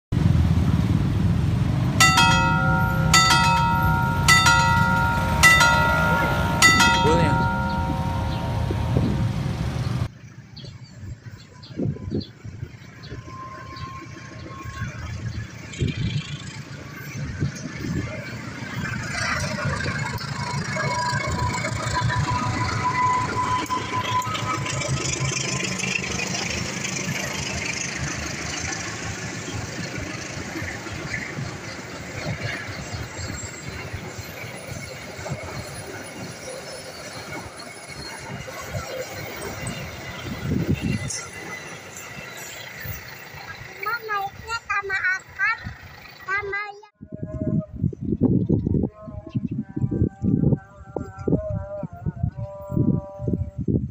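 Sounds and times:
diesel locomotive engine rumble: 0:00.2 - 0:10.5, 0:11.1 - 0:47.8
ringing chime tones: 0:02.0 - 0:10.1.

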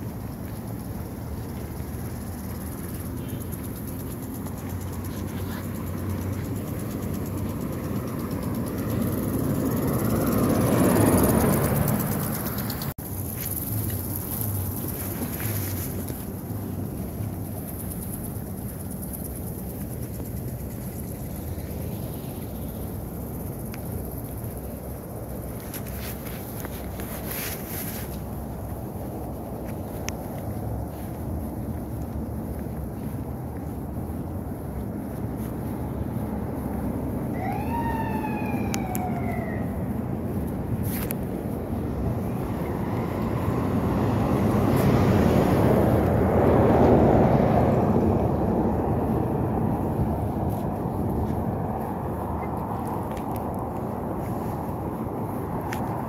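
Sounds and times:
street noise rumble: 0:00.0 - 0:56.0
vehicle passing: 0:00.0 - 0:56.0
wind on microphone: 0:03.6 - 0:56.0.

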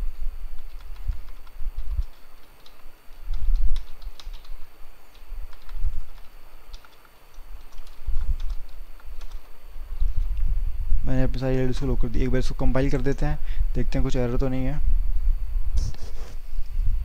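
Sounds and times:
keyboard key clicks: 0:00.6 - 0:09.5.

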